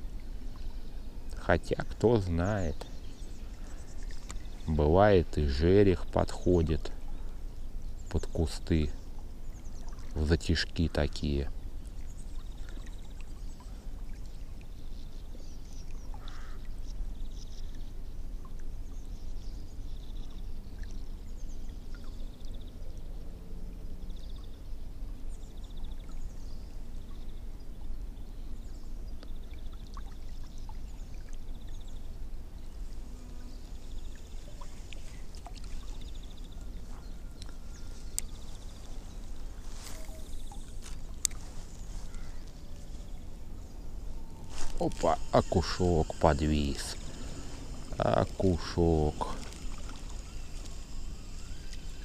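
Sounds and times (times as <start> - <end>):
water lapping against boat hull: 33.8 - 52.0
fishing reel gears whirring: 44.2 - 52.0.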